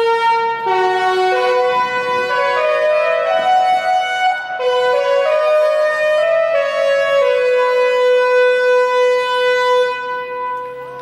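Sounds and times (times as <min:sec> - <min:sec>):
horns sounding held chords: 0:00.0 - 0:11.0.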